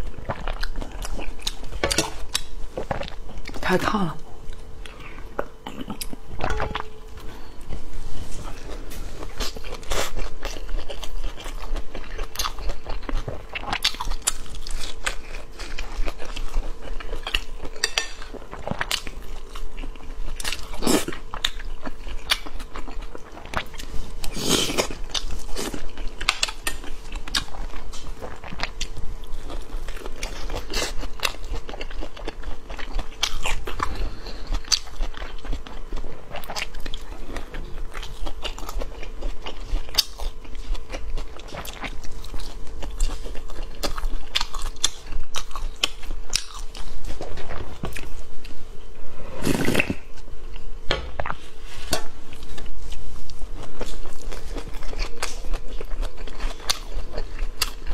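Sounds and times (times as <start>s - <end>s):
faint steady hum: 0.0s - 57.9s.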